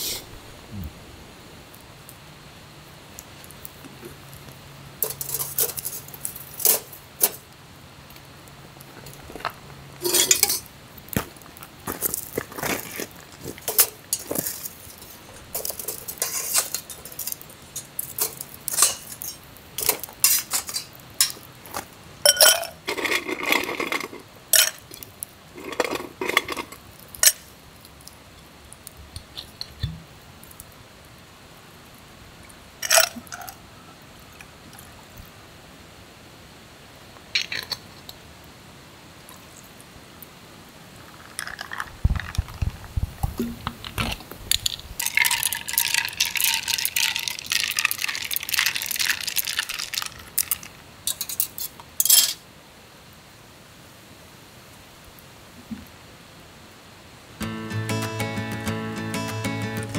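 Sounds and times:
cookware rattling clatters: 0:10.0 - 0:10.6
metal and glass cookware clinking: 0:10.0 - 0:10.7, 0:15.6 - 0:21.4, 0:22.2 - 0:25.0, 0:44.6 - 0:50.1, 0:51.1 - 0:52.4.

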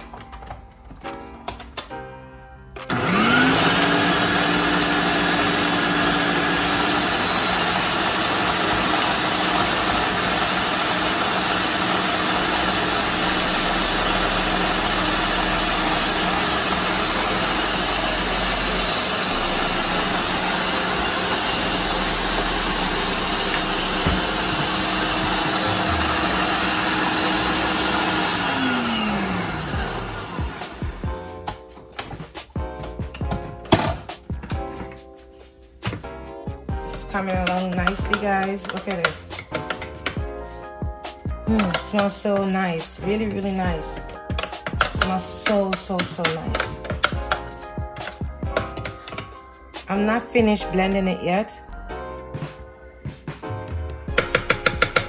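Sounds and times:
blender motor whine: 0:02.9 - 0:31.2.

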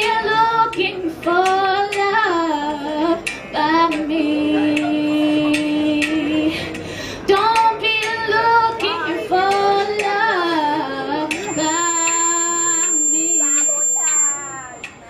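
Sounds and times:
woman singing: 0:00.0 - 0:06.6, 0:07.3 - 0:14.2
thin high whine: 0:11.4 - 0:15.0.

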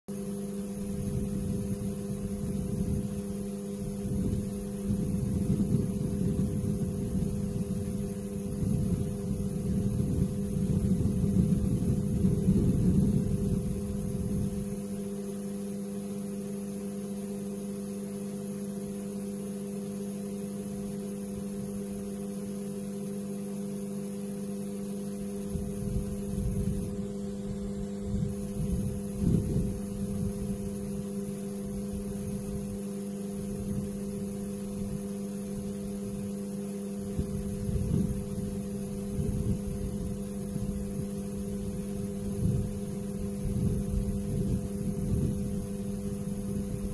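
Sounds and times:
steady hum with fixed tones: 0:00.1 - 0:46.9.

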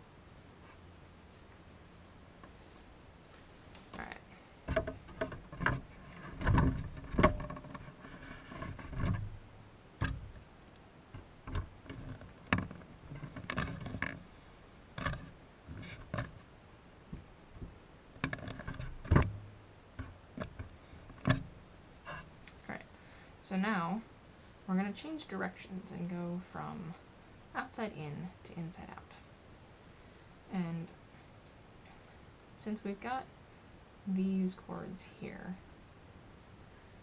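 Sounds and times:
rustling: 0:00.2 - 0:23.3
bumps and knocks: 0:04.6 - 0:09.4, 0:10.0 - 0:10.4.

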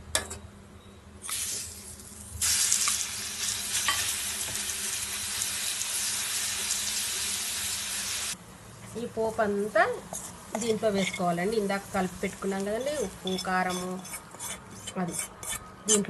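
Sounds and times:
paste sizzling in hot oil: 0:01.3 - 0:08.4
spoon stirring: 0:10.1 - 0:16.0.

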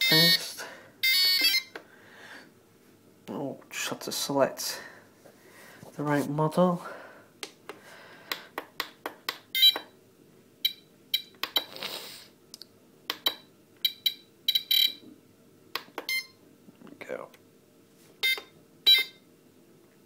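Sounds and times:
short electronic beeps: 0:18.2 - 0:19.2.

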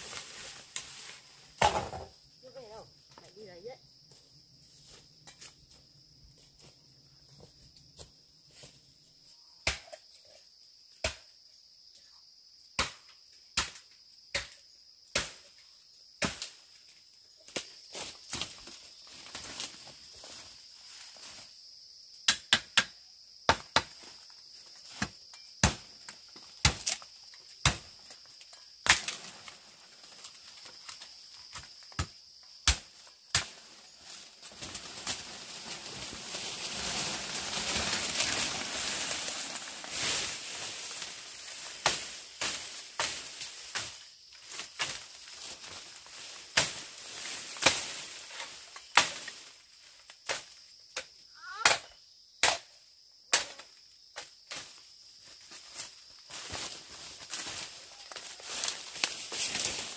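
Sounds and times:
rustling of leaves and branches: 0:00.0 - 0:09.5, 0:14.7 - 0:22.2, 0:23.9 - 0:51.6, 0:53.6 - 0:59.9
machete chopping bamboo: 0:09.6 - 0:10.0, 0:11.0 - 0:11.3, 0:12.8 - 0:13.0, 0:13.6 - 0:15.4, 0:16.2 - 0:16.6, 0:22.3 - 0:24.0, 0:25.0 - 0:25.9, 0:26.6 - 0:27.0, 0:27.6 - 0:27.9, 0:28.8 - 0:29.2, 0:31.5 - 0:33.6, 0:41.8 - 0:44.0, 0:46.6 - 0:46.9, 0:48.9 - 0:49.3, 0:50.2 - 0:52.7, 0:53.3 - 0:53.6.

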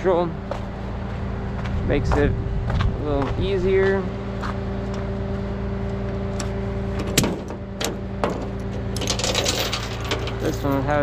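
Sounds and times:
tow truck engine and hydraulics hum: 0:00.0 - 0:11.0
metallic rattling: 0:07.0 - 0:11.0.

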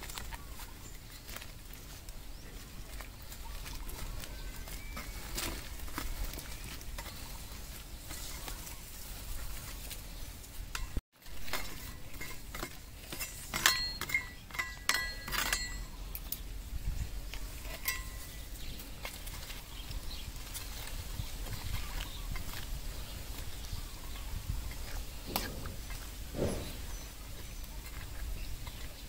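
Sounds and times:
metal spoon scraping a wok: 0:10.7 - 0:16.0
metallic ring: 0:11.6 - 0:16.0, 0:17.6 - 0:18.4.

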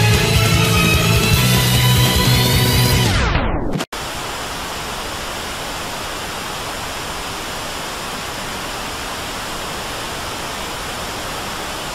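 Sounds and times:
steady static hiss: 0:04.0 - 0:11.9.

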